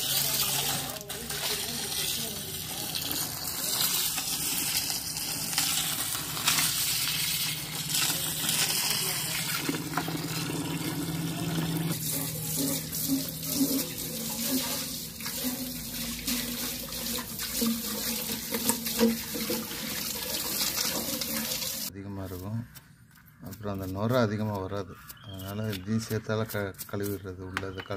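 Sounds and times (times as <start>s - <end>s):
hose water splashing into gravel: 0.0s - 21.9s
water pouring through glass tank: 0.0s - 21.9s.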